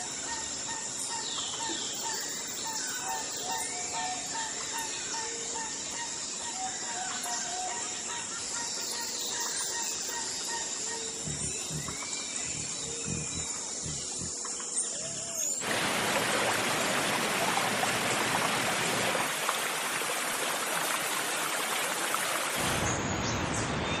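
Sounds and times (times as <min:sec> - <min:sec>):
faint bird chirps: 0:01.1 - 0:15.6
steady rushing hiss: 0:11.1 - 0:22.9.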